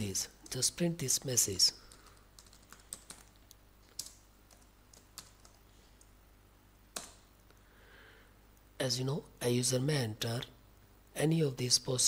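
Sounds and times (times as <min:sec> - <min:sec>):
faint keyboard typing: 0:00.4 - 0:06.2, 0:06.9 - 0:07.6.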